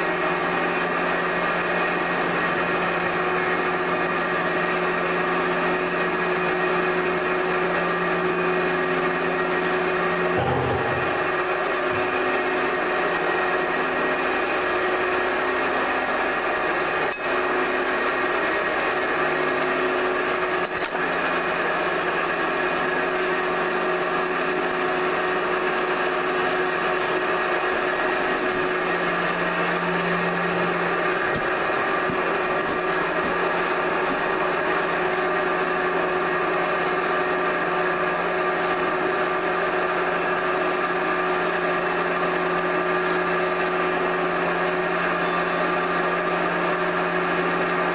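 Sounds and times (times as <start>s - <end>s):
potter's wheel motor humming: 0.0s - 47.9s.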